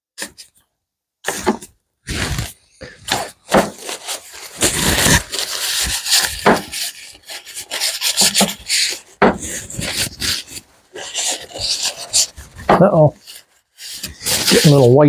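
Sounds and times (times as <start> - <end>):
wooden slats scraping: 1.3 - 15.0
sharp wooden knocks: 9.2 - 9.5.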